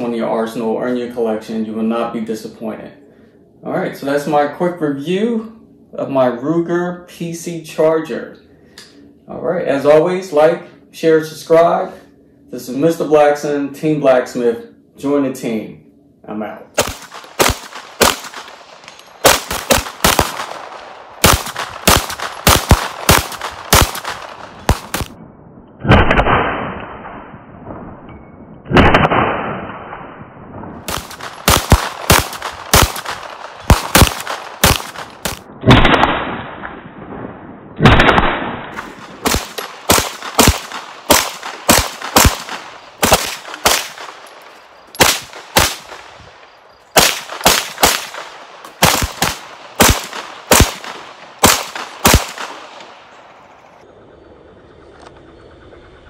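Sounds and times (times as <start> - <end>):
gunshot ringing out: 16.8 - 18.6, 19.2 - 25.2, 25.8 - 27.4, 28.7 - 30.1, 30.9 - 36.8, 37.8 - 44.3, 45.0 - 46.2, 47.0 - 53.0
rifle gunshots: 16.8 - 25.2, 25.8 - 27.3, 28.7 - 30.1, 30.8 - 36.8, 37.8 - 53.7.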